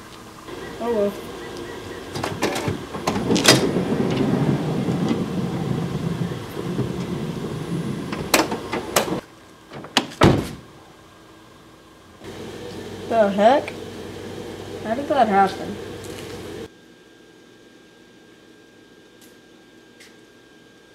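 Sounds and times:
sliding door motor running: 0.5 - 10.3, 12.2 - 16.7
door latch clunk: 2.1 - 4.4.

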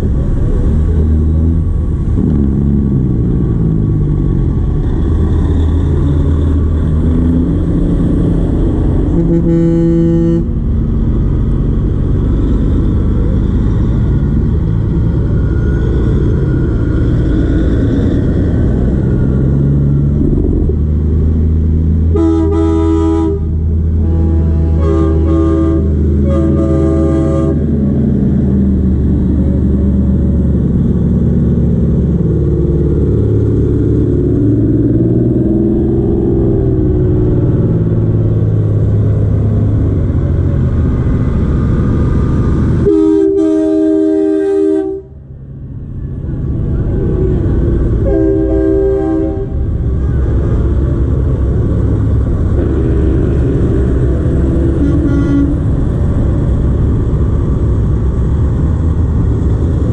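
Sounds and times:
truck diesel engines rumbling: 0.0 - 59.9
truck air horn blasts: 9.1 - 10.7, 22.1 - 27.8, 42.8 - 45.2, 48.0 - 49.7, 54.3 - 55.8.

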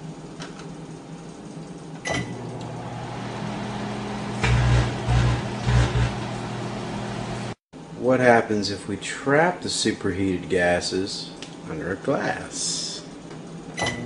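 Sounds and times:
microwave oven humming: 1.9 - 7.6, 13.7 - 14.0.

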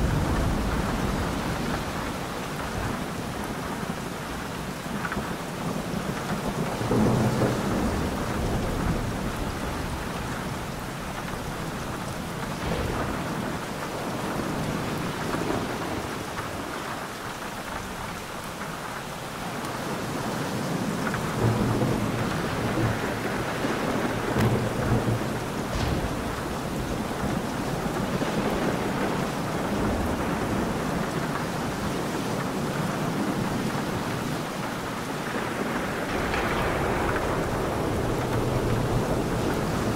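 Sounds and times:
rolling thunder: 0.0 - 4.0, 6.4 - 18.4, 20.8 - 31.4, 35.1 - 39.9
heavy rain: 0.0 - 39.9.

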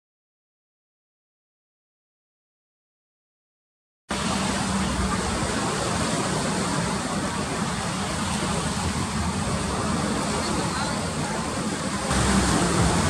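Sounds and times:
river rushing: 4.1 - 13.0.

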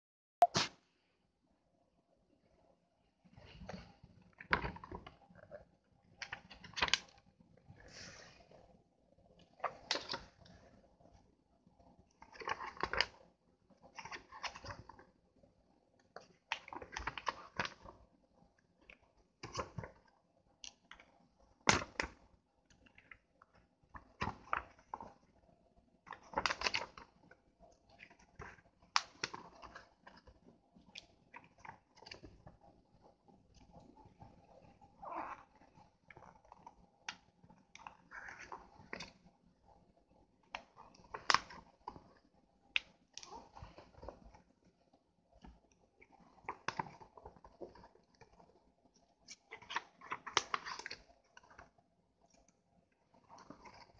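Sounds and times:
paper pages turning: 6.2 - 7.1, 12.2 - 13.2, 13.9 - 15.0, 16.4 - 18.0, 19.4 - 20.0, 24.0 - 25.2, 26.1 - 27.1, 28.0 - 30.4, 40.5 - 42.2, 49.2 - 51.7.

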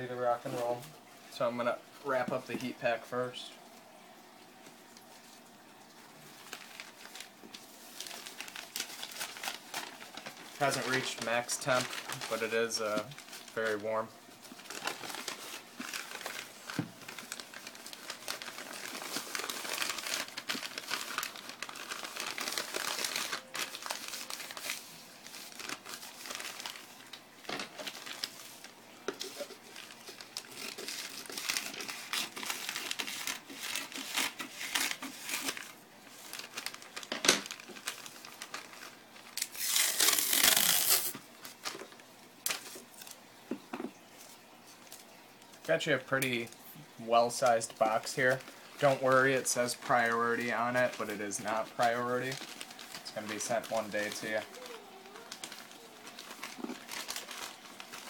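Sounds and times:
newspaper rustling and crinkling: 4.6 - 58.0
paper ripping: 6.4 - 41.9, 47.5 - 58.0.

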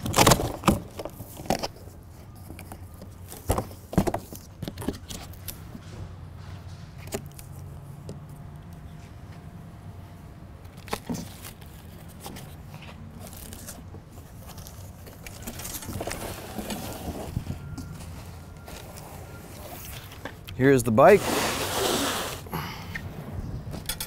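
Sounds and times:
cardboard box scrapes and knocks: 21.1 - 22.5.

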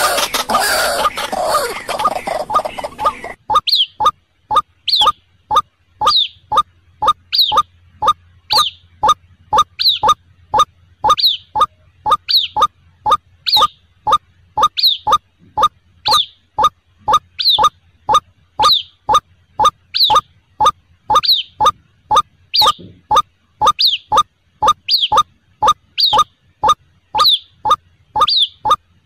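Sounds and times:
waterhen calling: 0.0 - 6.3.

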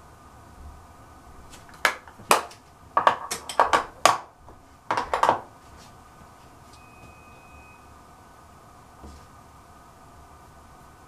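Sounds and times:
plastic items clacking on hard surface: 1.7 - 4.3, 4.9 - 5.5.

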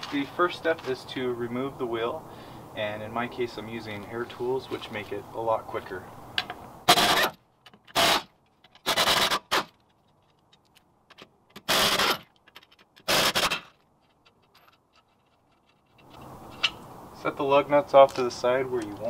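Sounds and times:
air impact wrench bursts: 6.9 - 8.3, 11.6 - 12.2, 13.0 - 13.7.

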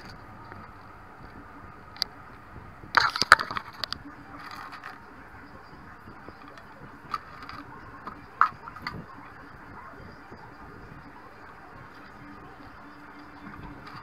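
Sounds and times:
plastic toy soldiers clattering: 3.0 - 5.0, 6.4 - 9.0.

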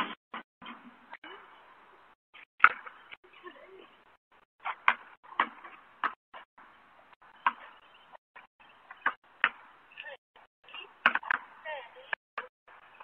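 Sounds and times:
basketball bouncing on asphalt: 4.6 - 6.2, 7.2 - 9.7.

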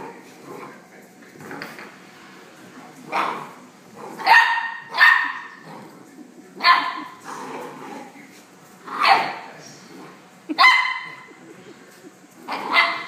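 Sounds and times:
puppy barking: 4.2 - 5.6, 6.6 - 7.2, 8.9 - 9.5, 10.5 - 11.4, 12.5 - 13.0.

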